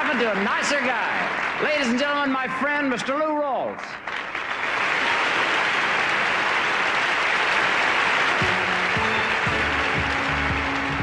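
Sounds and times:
audience applauding: 0.0 - 2.9, 4.0 - 11.0
band playing: 8.3 - 11.0.

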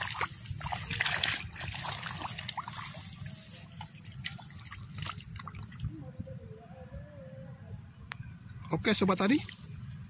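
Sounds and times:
feet wading through shallow water: 0.0 - 5.9.

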